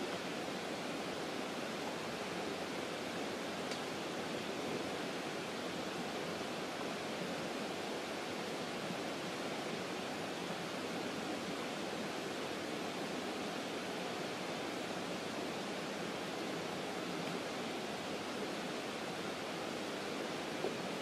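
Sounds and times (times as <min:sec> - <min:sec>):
flowing water rushing: 0:00.0 - 0:21.0
faint tick: 0:03.7 - 0:03.9.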